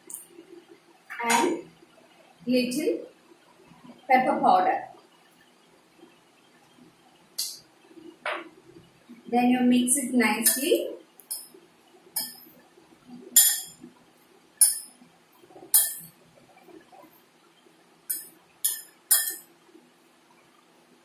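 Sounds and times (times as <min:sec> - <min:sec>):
metal spoon clinking on ceramic bowl: 0:11.3 - 0:11.5, 0:13.4 - 0:13.8, 0:14.6 - 0:15.0, 0:15.7 - 0:16.1, 0:18.1 - 0:19.5.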